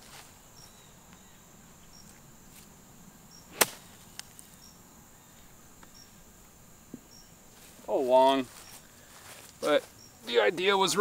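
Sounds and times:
high insect chirps: 0:00.0 - 0:11.0
golf club striking ball: 0:03.5 - 0:03.9.

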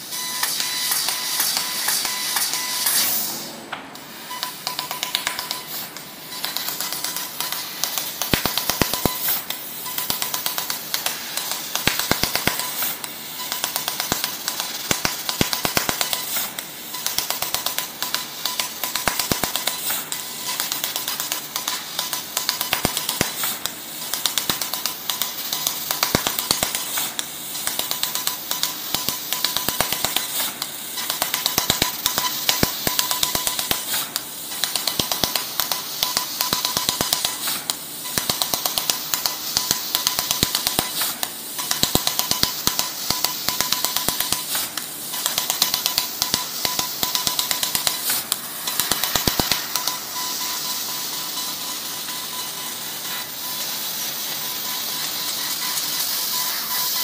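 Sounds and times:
laser cutter rapid ticks: 0:00.3 - 0:03.0, 0:04.3 - 0:57.0
steady hiss: 0:04.1 - 0:57.0
thin steady whine: 0:45.2 - 0:57.0.

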